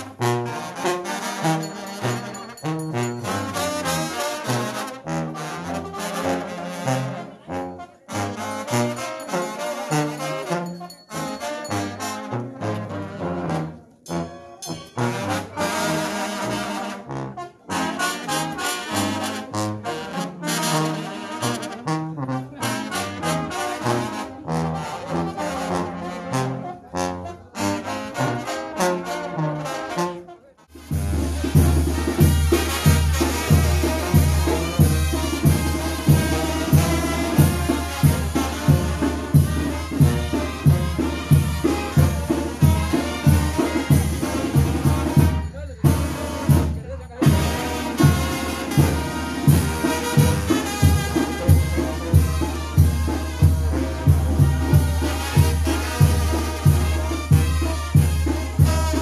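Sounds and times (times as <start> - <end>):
brass band playing: 0.0 - 59.0
bass-heavy drumming: 30.8 - 59.0.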